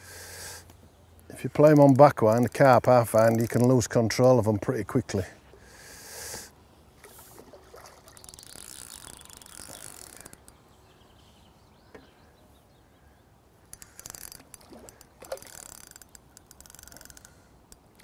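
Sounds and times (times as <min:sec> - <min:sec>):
fishing reel drag ticking: 0:08.1 - 0:10.6, 0:13.7 - 0:18.0.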